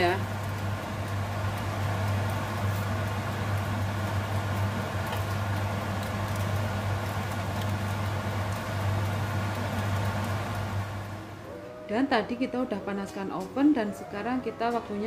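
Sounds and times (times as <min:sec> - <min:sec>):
kitchen appliance humming: 0:00.0 - 0:11.6.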